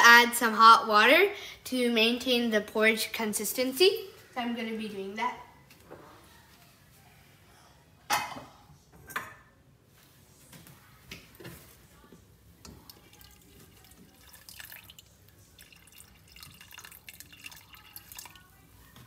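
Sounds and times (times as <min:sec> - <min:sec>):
water trickling into porridge: 0:12.6 - 0:18.7.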